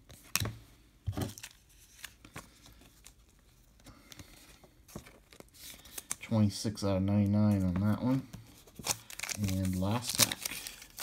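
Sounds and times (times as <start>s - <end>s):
trading cards being handled: 1.1s - 11.0s
thin plastic crinkling: 8.7s - 11.0s.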